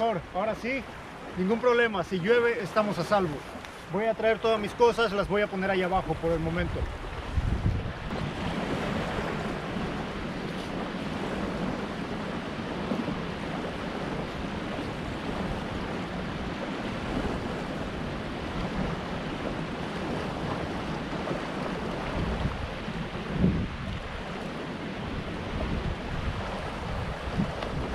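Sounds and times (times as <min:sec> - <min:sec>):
wind buffeting microphone: 0:06.0 - 0:27.9.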